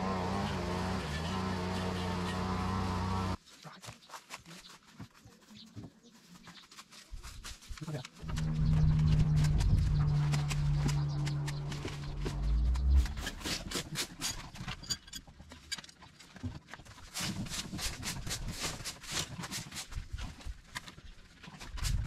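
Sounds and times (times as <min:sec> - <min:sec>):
steady low hum: 0:08.2 - 0:13.7.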